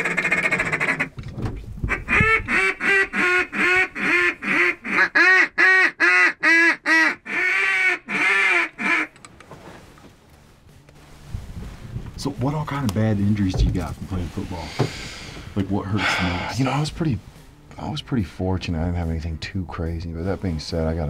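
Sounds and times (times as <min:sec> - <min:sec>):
duck call quacking: 0:00.0 - 0:01.1, 0:01.9 - 0:09.2.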